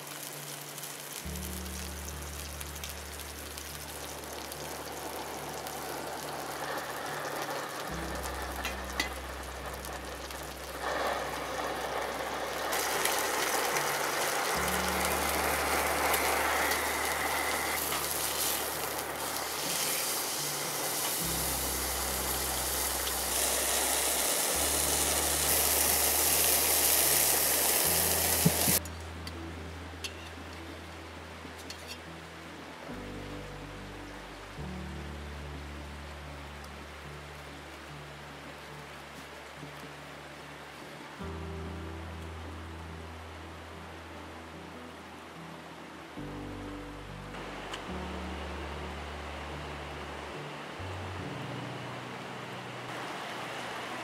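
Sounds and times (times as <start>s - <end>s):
steak sizzling in a frying pan: 0.0s - 28.8s
soft background music: 0.0s - 54.0s.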